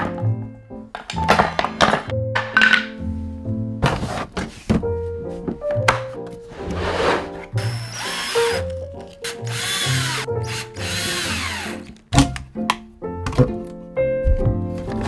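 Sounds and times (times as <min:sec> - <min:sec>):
background music: 0:00.0 - 0:15.0
cordless drill driving screws: 0:07.6 - 0:11.9.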